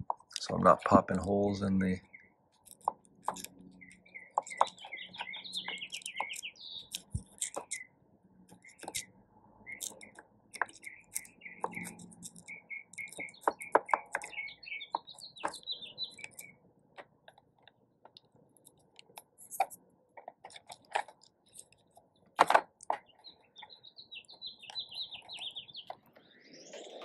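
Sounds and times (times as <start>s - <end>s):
songbird chirping: 0.0s - 27.0s
hand tool clicking on paper: 2.6s - 7.8s, 8.5s - 9.1s, 9.7s - 17.4s.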